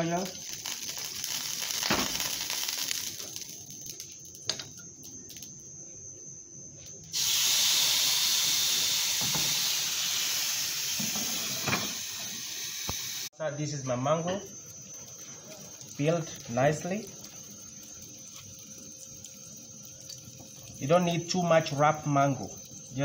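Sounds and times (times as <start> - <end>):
oil hissing in grill pan: 0.0 - 4.7, 7.1 - 13.3, 14.4 - 23.0
fish sizzling: 0.0 - 5.5, 7.1 - 13.3, 14.4 - 23.0.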